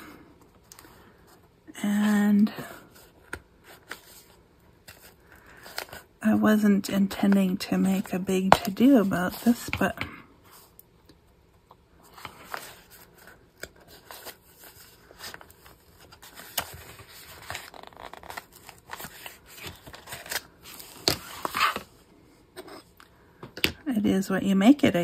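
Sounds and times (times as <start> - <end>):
paper pages rustling: 2.8 - 6.1, 12.0 - 21.9.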